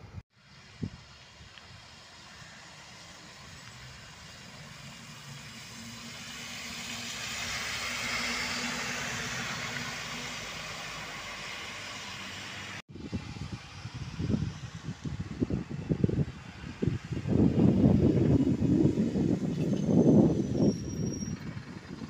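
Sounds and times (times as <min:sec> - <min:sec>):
bus driving past: 0:00.4 - 0:22.0
wind buffeting microphone: 0:12.9 - 0:22.0.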